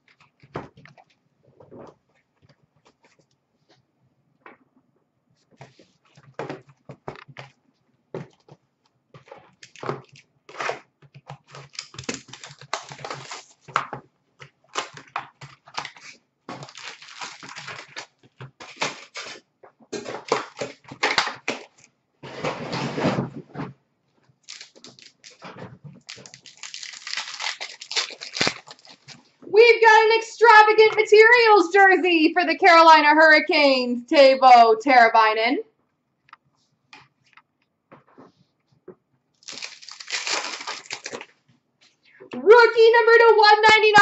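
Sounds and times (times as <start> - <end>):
wrapping and cardboard tearing: 9.4 - 13.9, 14.5 - 23.2, 24.4 - 29.3, 39.4 - 41.4.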